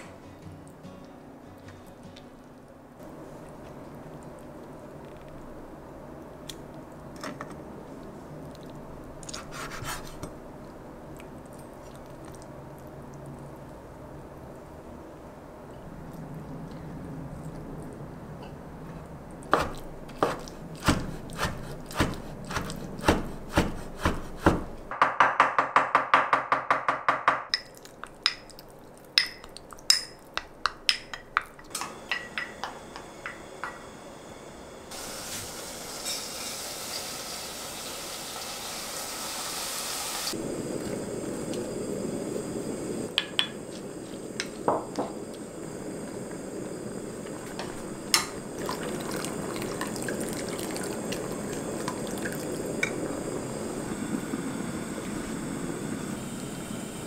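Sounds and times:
knife chopping on wooden board: 0:19.5 - 0:26.0
rice sizzling in pot: 0:34.9 - 0:57.0
rice poured into pot hissing: 0:35.0 - 0:40.4.

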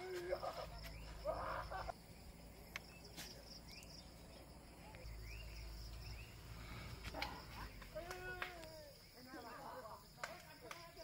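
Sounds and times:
insect buzz: 0:00.0 - 0:10.1
bird chirps: 0:00.4 - 0:07.9.

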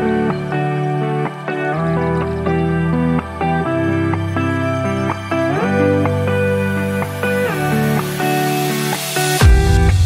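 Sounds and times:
plucked guitar notes: 0:00.0 - 0:10.0
sustained bass line: 0:09.4 - 0:10.0.

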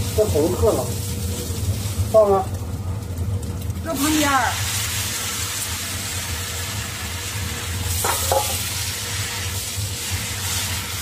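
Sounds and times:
food sizzling in a wok: 0:00.0 - 0:11.0
spatula stirring in wok: 0:04.6 - 0:11.0.

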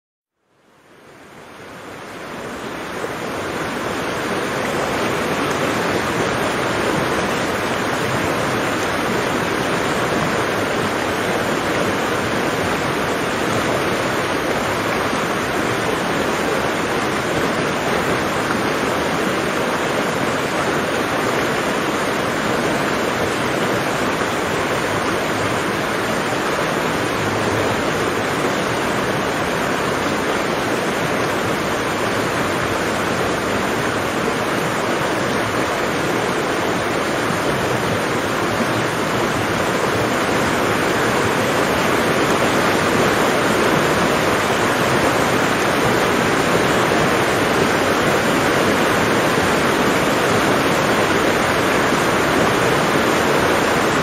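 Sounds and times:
rushing water: 0:00.4 - 0:54.0.

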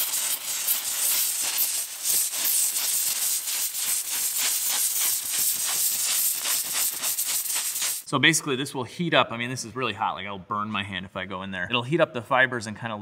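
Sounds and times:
steam cleaner hissing: 0:00.0 - 0:08.2.

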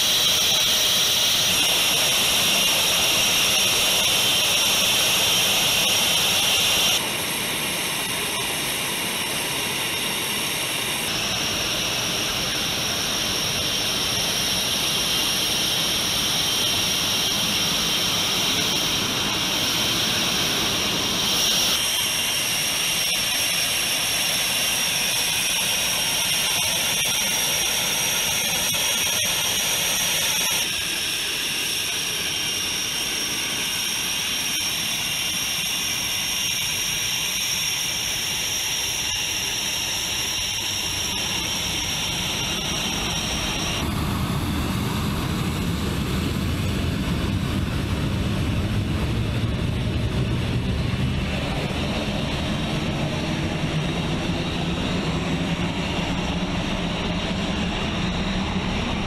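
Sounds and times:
jet engines running with whine: 0:00.0 - 0:59.0.

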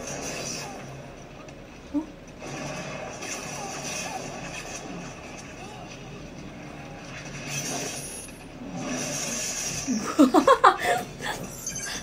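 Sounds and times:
woman laughing: 0:10.0 - 0:12.0.

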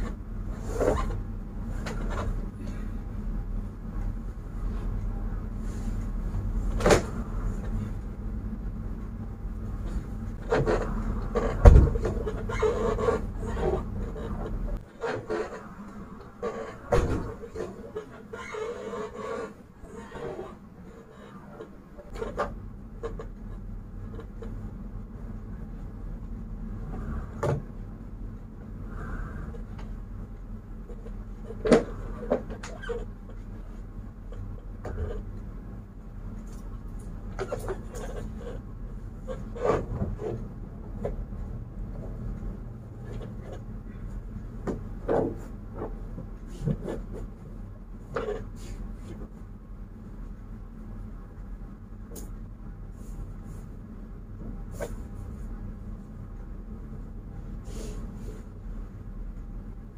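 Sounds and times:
steady low hum: 0:00.0 - 0:59.9
knocks and thumps of sofa: 0:11.4 - 0:12.3.

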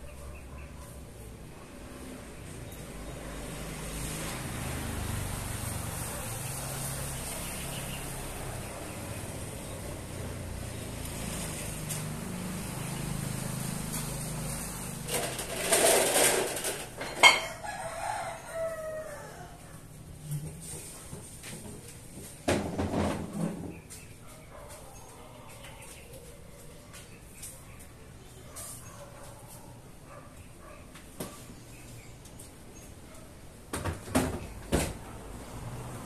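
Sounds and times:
rooster crowing: 0:17.2 - 0:19.9.

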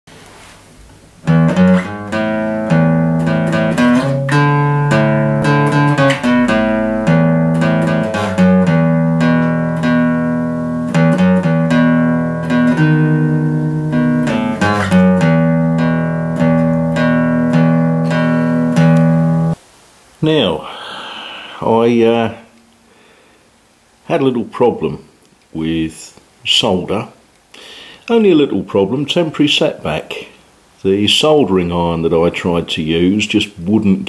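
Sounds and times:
plucked guitar tune: 0:01.2 - 0:19.6.

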